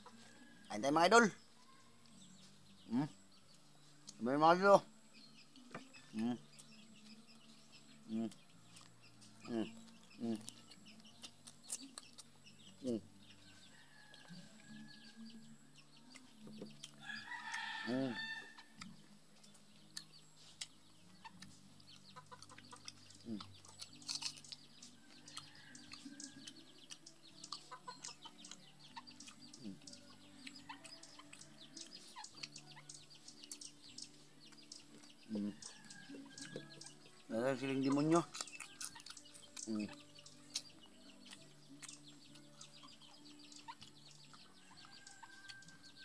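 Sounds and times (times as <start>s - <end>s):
small birds chirping: 0.0s - 46.0s
chewing clicks: 8.1s - 13.0s, 16.0s - 17.6s, 18.6s - 37.1s, 37.9s - 45.8s
rooster crowing: 17.0s - 18.6s
hens clucking: 21.2s - 23.9s, 35.3s - 39.9s.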